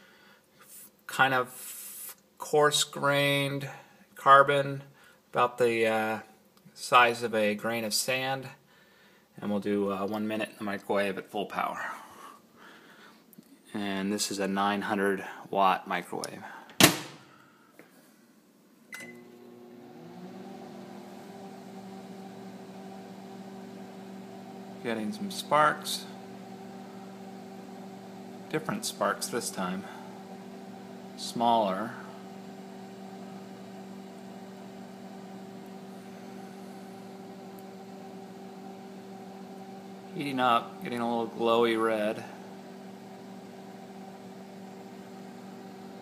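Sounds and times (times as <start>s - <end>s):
microwave beep: 18.9s - 19.4s
microwave oven humming: 18.9s - 46.0s
fan whirring: 21.2s - 46.0s.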